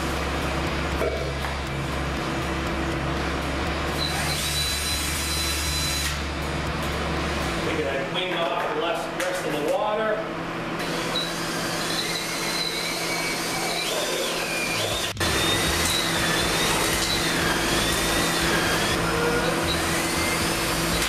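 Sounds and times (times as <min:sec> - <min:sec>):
cordless drill motor whine: 0:03.9 - 0:06.2, 0:10.8 - 0:21.0.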